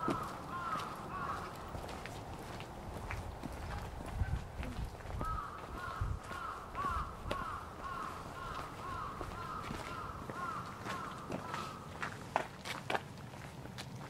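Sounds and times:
crow cawing: 0.0s - 1.7s, 5.2s - 12.0s.

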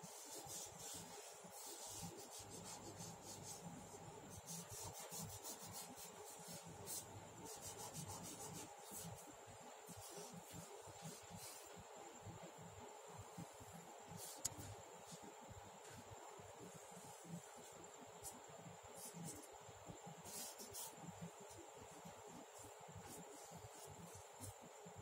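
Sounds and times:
charcoal rubbing on paper: 0.0s - 9.3s, 20.2s - 21.0s, 22.3s - 24.6s.

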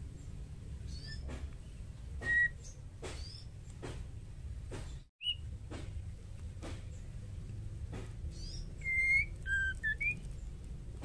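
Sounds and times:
bird whistling call notes: 2.2s - 3.4s, 5.2s - 5.5s, 8.4s - 10.3s.

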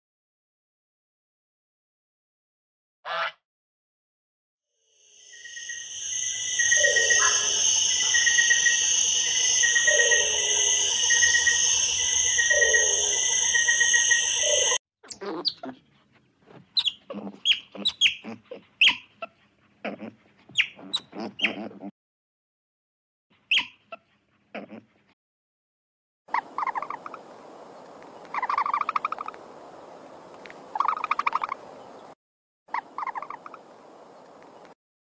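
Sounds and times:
high insect drone: 4.8s - 14.8s
lower falling call: 5.6s - 14.8s.

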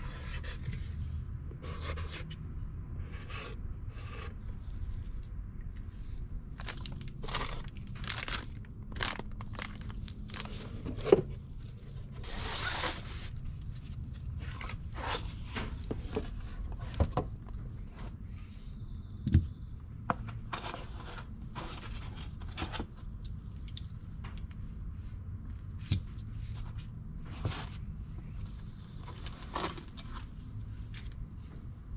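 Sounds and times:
plastic bags and cardboard crinkling: 6.4s - 15.1s.

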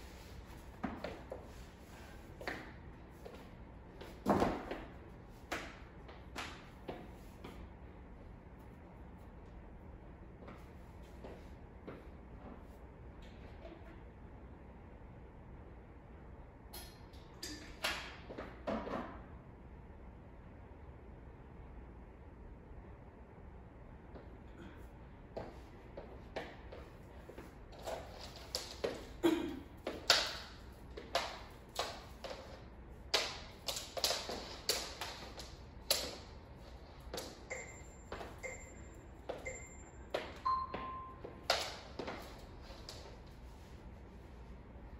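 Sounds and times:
jump rope tapping hard floor: 27.9s - 36.3s, 41.4s - 43.1s
short high beeps: 37.5s - 41.2s.

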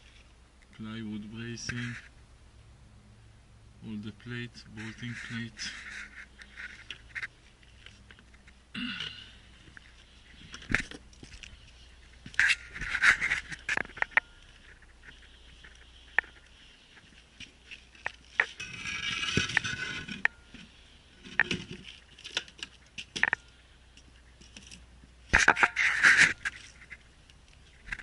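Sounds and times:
scraping rustle: 4.6s - 8.6s, 9.6s - 23.4s, 24.3s - 28.0s.

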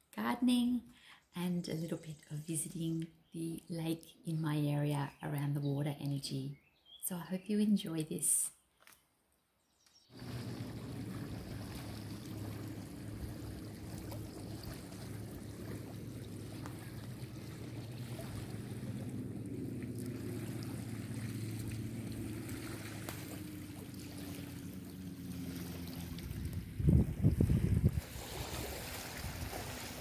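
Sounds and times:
wind: 0.0s - 30.0s
moving water: 10.1s - 30.0s
steady low hum: 10.2s - 28.0s.

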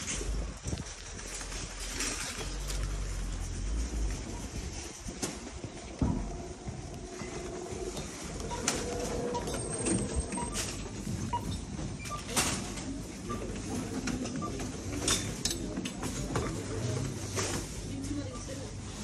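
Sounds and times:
supermarket hubbub: 0.0s - 19.0s
checkout scanner beeps: 7.2s - 17.2s, 17.8s - 19.0s.

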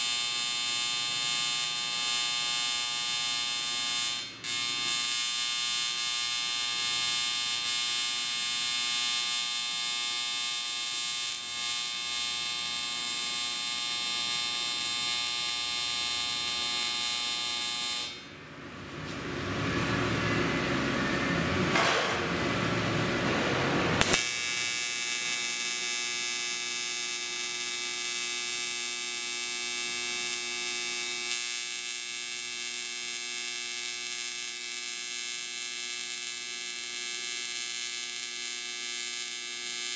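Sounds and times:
rough noisy welding sound: 0.0s - 18.3s, 21.7s - 39.9s
welding arc buzz: 0.0s - 18.3s, 19.1s - 39.9s.

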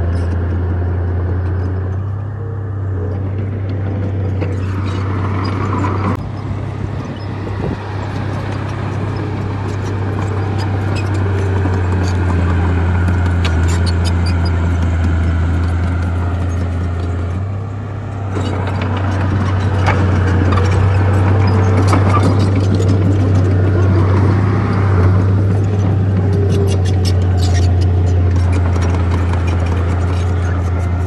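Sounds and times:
heavy diesel engine drone: 0.0s - 31.0s
clicks and clanks: 25.4s - 31.0s.

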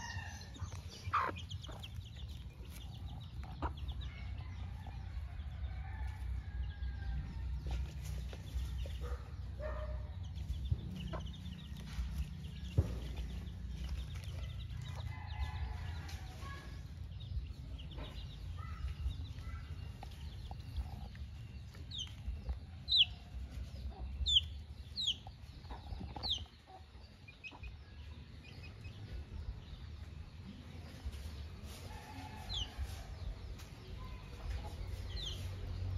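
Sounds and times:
hen clucking: 0.0s - 4.4s, 19.8s - 29.1s
chicks peeping: 0.0s - 35.9s.

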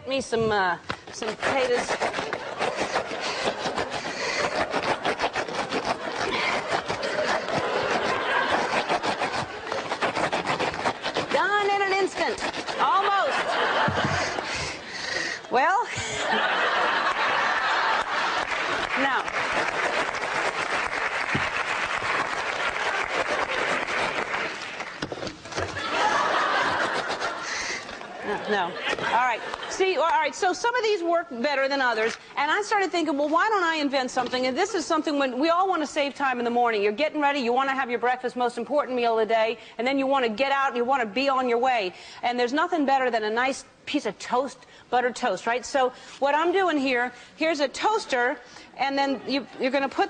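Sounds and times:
rubber gloves rasping potato: 0.1s - 39.3s, 45.0s - 50.0s
audience applauding: 17.0s - 25.1s.

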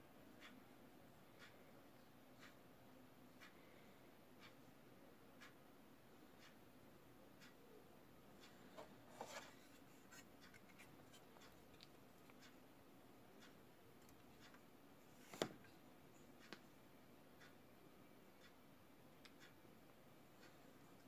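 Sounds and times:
light rubbing of plastic model: 8.7s - 11.9s.

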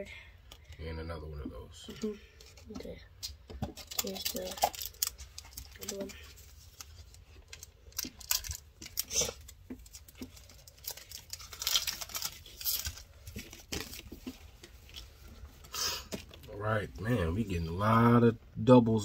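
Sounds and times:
cards rustling and clicking: 1.9s - 15.2s
foil pack tearing and crinkling: 3.8s - 14.1s.

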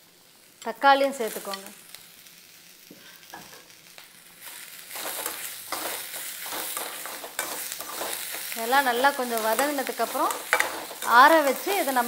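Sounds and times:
vegetables sizzling in a pan: 0.0s - 12.0s
spoon scraping a pan: 4.4s - 12.0s.

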